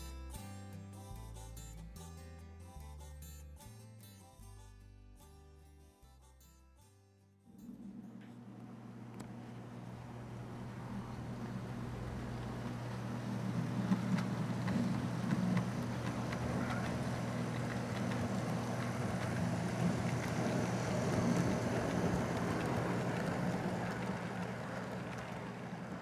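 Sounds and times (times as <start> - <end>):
model train motor hum: 7.5 - 26.0
wheels ticking over track: 7.5 - 26.0.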